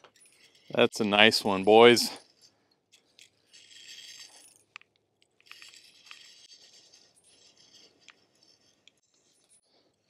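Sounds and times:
small clicks and rattles: 2.2 - 10.0.

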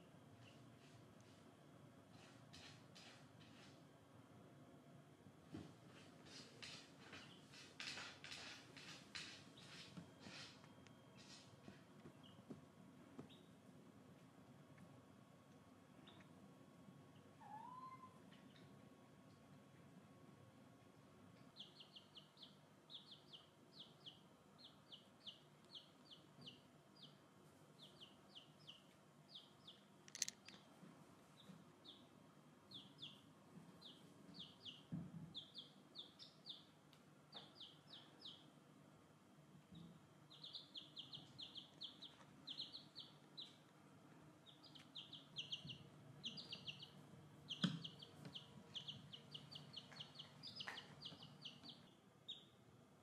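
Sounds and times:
baby chicks peeping: 6.2 - 12.6, 13.2 - 13.7, 16.0 - 16.3, 17.1 - 18.8, 21.3 - 38.6, 39.7 - 52.6
sharp clicks: 30.1 - 30.6.

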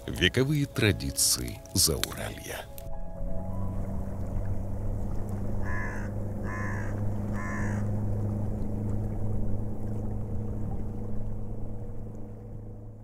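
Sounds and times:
motorboat engine drone: 2.8 - 13.0
harsh caw-like bird calls: 5.6 - 7.9.

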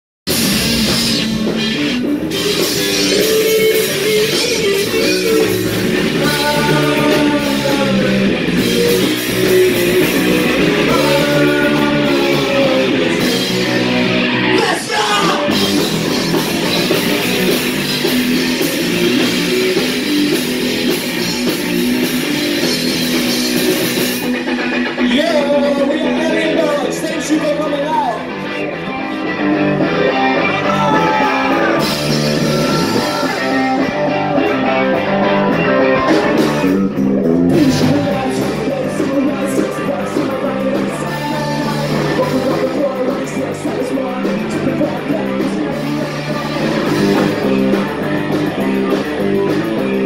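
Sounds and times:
punk rock band playing: 0.3 - 50.0
person singing: 2.3 - 17.3, 30.0 - 50.0.

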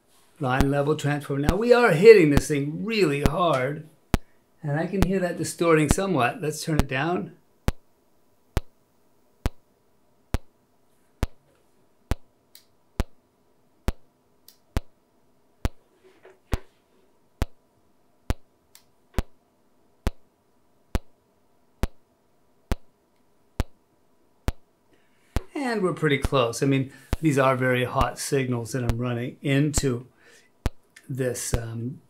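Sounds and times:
sharp electronic clicks: 7.6 - 7.9, 8.5 - 8.8, 9.4 - 9.7, 10.3 - 10.6, 11.2 - 11.4, 12.1 - 13.2, 13.9 - 15.0, 15.6 - 15.8, 17.4 - 17.6, 18.3 - 19.4, 20.0 - 20.2, 20.9 - 21.2, 21.8 - 22.0, 22.7 - 22.9, 23.6 - 23.8, 24.5 - 24.7.

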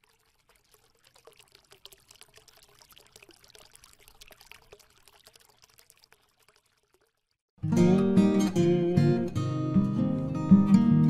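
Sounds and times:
water trickling and dripping: 0.0 - 7.5.

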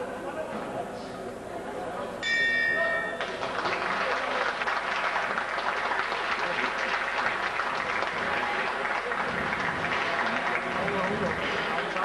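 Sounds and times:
crowd applauding: 3.0 - 12.0.

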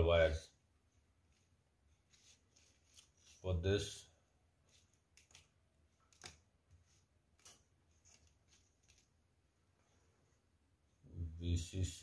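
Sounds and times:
wires clicking and rustling: 1.9 - 3.6, 4.6 - 9.8.

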